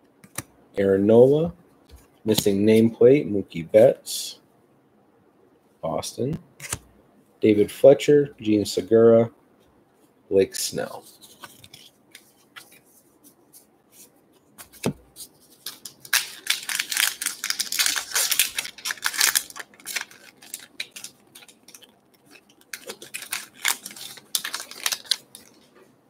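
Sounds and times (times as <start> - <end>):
cards sliding out of wrapper: 15.5 - 25.6
wrapper tearing and crinkling: 15.5 - 25.6.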